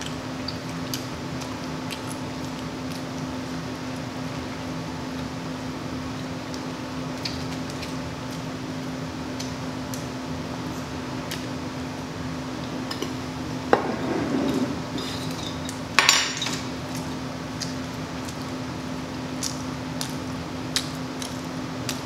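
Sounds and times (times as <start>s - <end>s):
steady low hum: 0.0s - 22.0s
tableware knocking and clattering: 13.7s - 16.7s.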